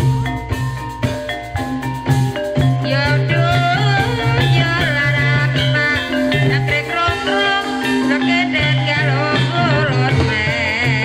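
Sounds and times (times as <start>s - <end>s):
drums: 0.0s - 11.0s
gamelan band music: 0.0s - 11.0s
high wavering melody: 0.0s - 11.0s.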